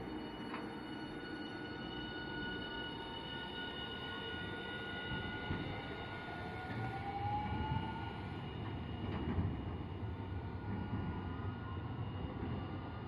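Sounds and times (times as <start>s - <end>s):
wheels rumbling on rails: 5.0s - 13.0s.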